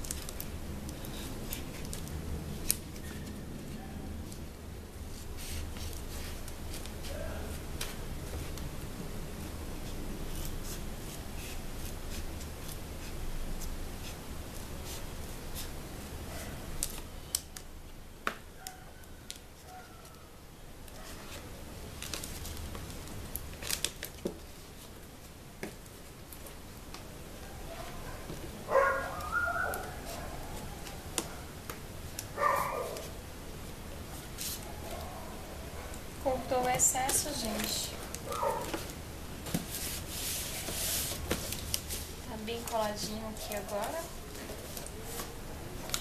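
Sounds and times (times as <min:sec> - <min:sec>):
cardboard cartons being handled: 0:36.2 - 0:46.0.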